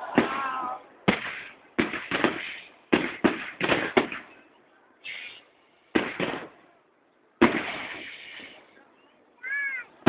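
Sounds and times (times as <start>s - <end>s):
firework shells bursting: 1.1s - 4.4s, 5.9s - 6.6s, 7.4s - 8.6s.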